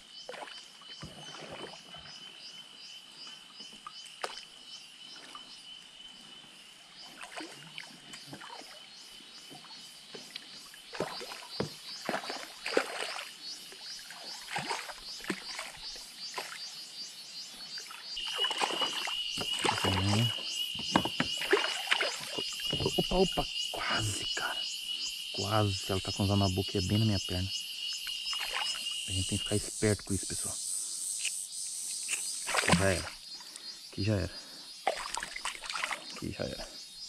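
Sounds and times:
insects buzzing: 0:00.0 - 0:37.0
fish splashing at water surface: 0:10.9 - 0:13.3, 0:14.1 - 0:15.8, 0:18.2 - 0:20.3, 0:21.4 - 0:22.7, 0:28.3 - 0:28.8, 0:32.4 - 0:33.2, 0:34.8 - 0:36.2.

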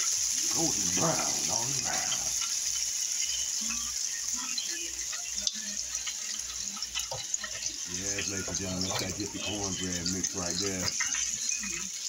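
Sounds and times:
hot oil sizzling in deep fryer: 0:00.0 - 0:12.0.

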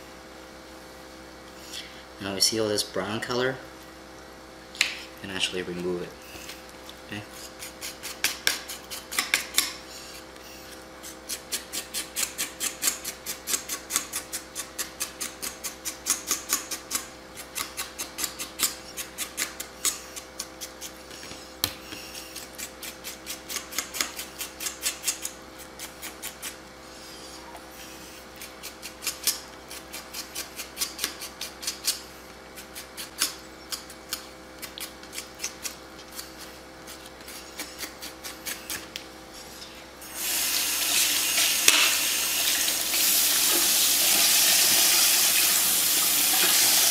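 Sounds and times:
steady faint hum: 0:00.0 - 0:46.9
knife scraping on cutting board: 0:33.9 - 0:39.6.

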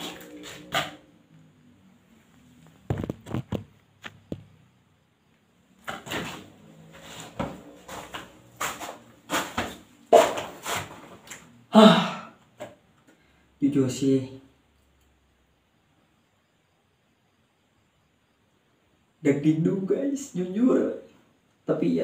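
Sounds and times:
footsteps on gritty floor: 0:00.0 - 0:01.0, 0:02.7 - 0:04.5, 0:05.8 - 0:11.3.

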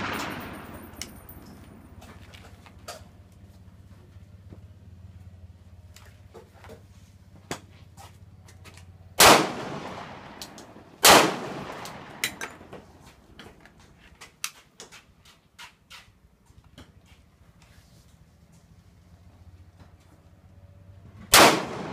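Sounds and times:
loud pistol shots echoing: 0:00.0 - 0:01.6, 0:09.2 - 0:12.6, 0:21.3 - 0:21.9.

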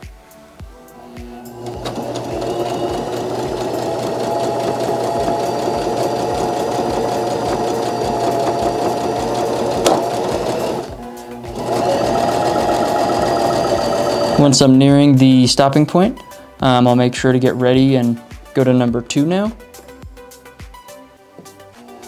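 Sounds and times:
sewing machine stitching: 0:01.4 - 0:14.6.

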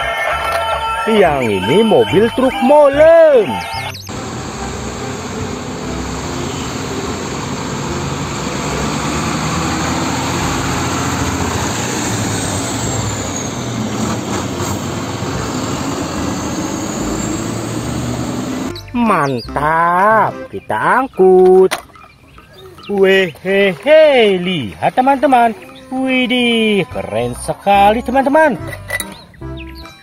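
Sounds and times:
truck diesel engine driving by: 0:00.0 - 0:20.6
tyre and traffic noise: 0:00.0 - 0:30.0.

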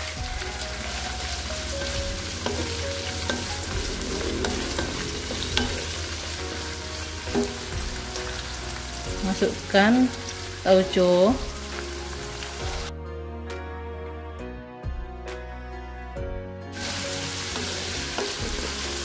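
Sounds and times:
food sizzling in hot oil: 0:00.0 - 0:12.9, 0:16.7 - 0:19.0.

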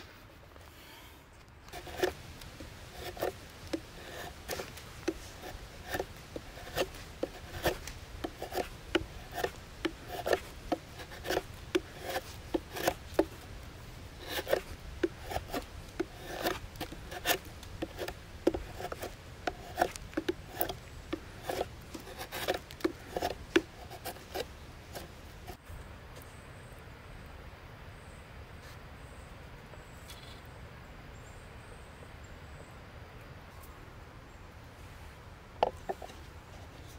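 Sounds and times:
blade cutting wood: 0:01.7 - 0:25.6.

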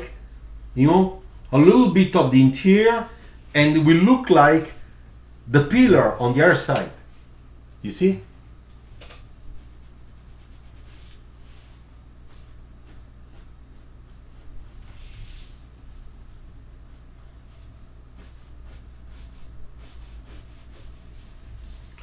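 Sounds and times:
faint low hum: 0:00.0 - 0:22.0
pencil scratching on paper: 0:09.5 - 0:15.6, 0:16.3 - 0:21.8.

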